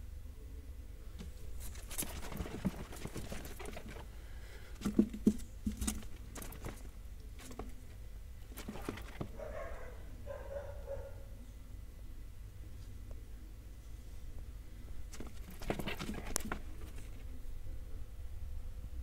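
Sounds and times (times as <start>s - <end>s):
baby rabbits scrabbling on bedding: 1.2s - 10.0s, 15.0s - 17.5s.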